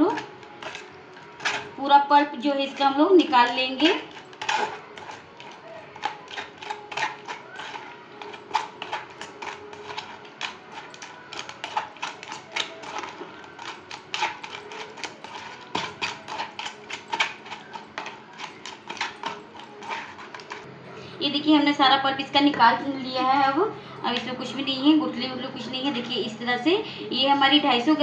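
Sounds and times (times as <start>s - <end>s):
spoon scraping metal strainer: 0.0s - 20.7s.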